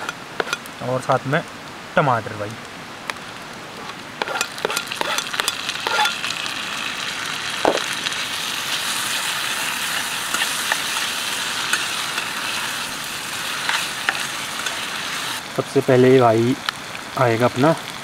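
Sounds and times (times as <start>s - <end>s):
utensils knocking against pan: 0.0s - 0.6s, 4.2s - 6.2s
vegetables sizzling in hot oil: 0.0s - 0.7s, 3.7s - 18.0s.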